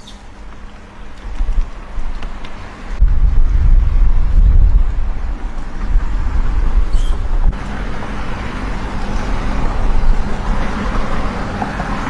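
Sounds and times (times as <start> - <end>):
low rumble: 3.0 - 7.6.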